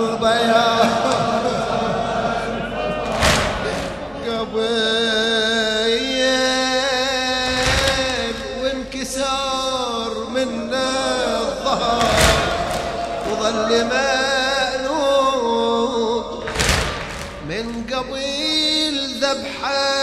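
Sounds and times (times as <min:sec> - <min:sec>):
men singing lament in chorus: 0:00.0 - 0:20.0
sharp thumps: 0:03.1 - 0:04.4, 0:07.4 - 0:09.0, 0:12.0 - 0:13.8, 0:16.5 - 0:18.0.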